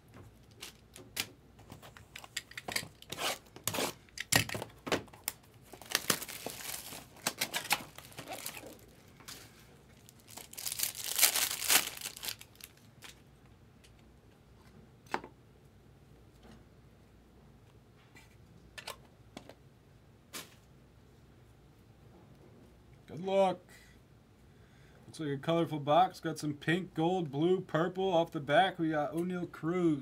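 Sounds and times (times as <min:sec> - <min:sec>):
wrapper crinkling: 0:00.4 - 0:01.3, 0:05.1 - 0:13.2.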